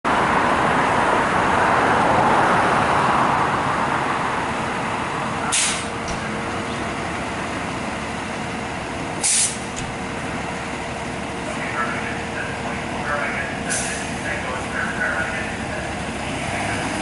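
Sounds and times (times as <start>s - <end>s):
fire engine running: 0.1s - 17.0s
air brakes hissing: 5.5s - 6.0s, 9.2s - 9.8s, 13.7s - 14.2s.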